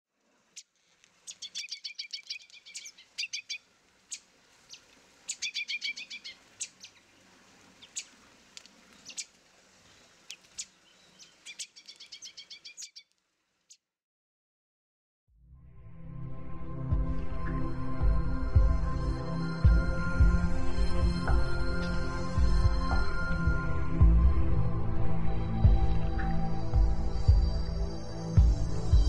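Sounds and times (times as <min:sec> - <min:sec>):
faint steady hiss: 0:00.1 - 0:13.8
songbirds chirping: 0:00.4 - 0:13.8.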